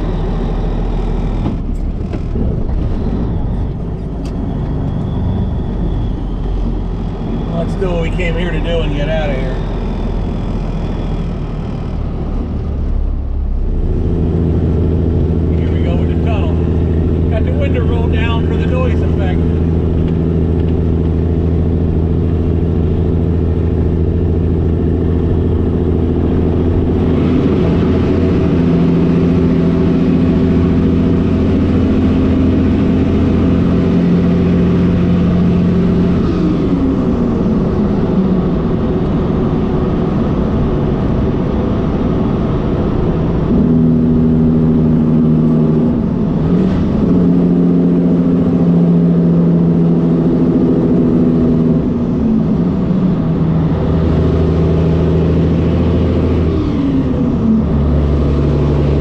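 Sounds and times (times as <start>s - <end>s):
diesel truck engine under load: 0.0s - 59.0s.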